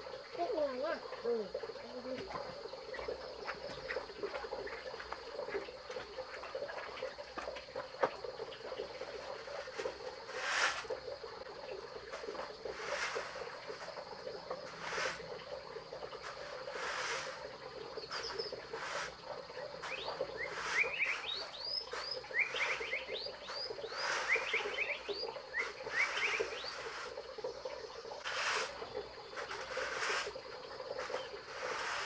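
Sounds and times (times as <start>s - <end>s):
frogs and insects buzzing: 0.0s - 32.0s
straw broom swishing on ground: 9.6s - 11.0s, 12.1s - 13.6s, 14.6s - 15.3s, 16.2s - 17.5s, 18.1s - 19.2s, 19.8s - 27.2s, 28.2s - 28.8s, 29.4s - 30.4s, 31.0s - 32.0s.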